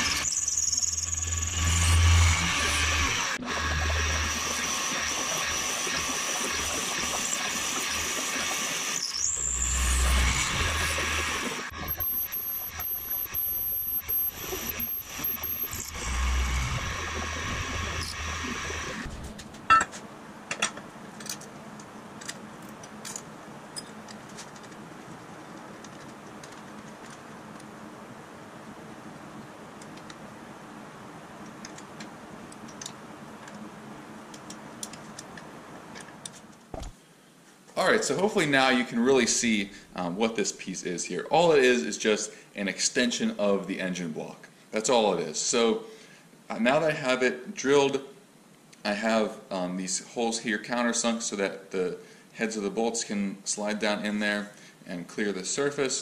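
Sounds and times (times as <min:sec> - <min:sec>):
machine tool squealing: 0:00.0 - 0:19.1.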